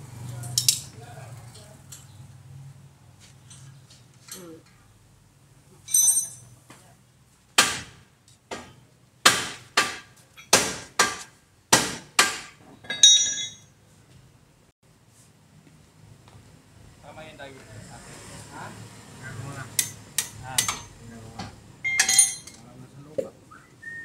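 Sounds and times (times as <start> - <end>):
ringing metallic clink: 5.9 - 6.5, 12.9 - 13.7, 21.8 - 22.6.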